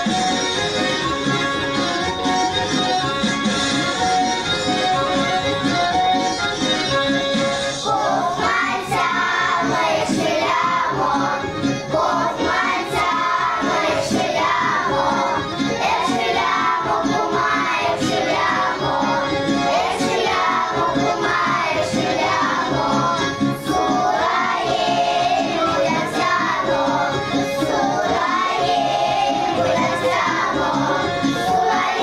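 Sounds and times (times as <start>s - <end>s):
instrumental accompaniment: 0.0s - 32.0s
children singing in unison: 7.8s - 32.0s.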